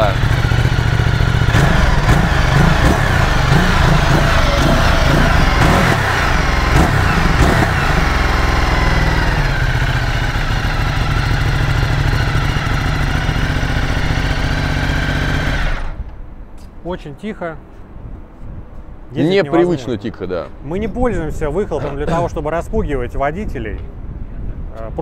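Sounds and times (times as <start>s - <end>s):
motorcycle engine running quietly: 0.0s - 16.1s.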